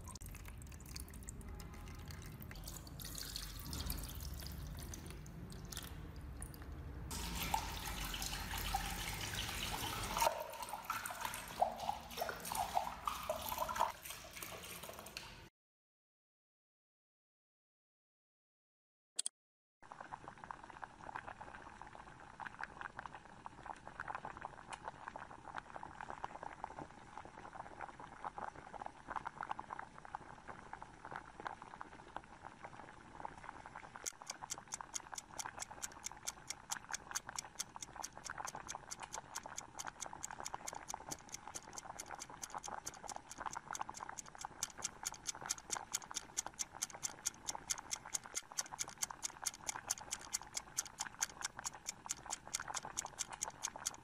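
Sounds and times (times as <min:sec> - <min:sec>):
gas bubbles fizzing: 0:00.0 - 0:15.1
clock-like ticking: 0:34.0 - 0:54.0.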